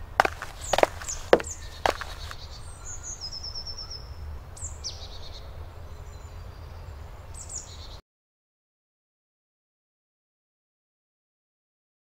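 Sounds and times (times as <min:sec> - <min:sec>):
birds singing: 0:00.2 - 0:08.0.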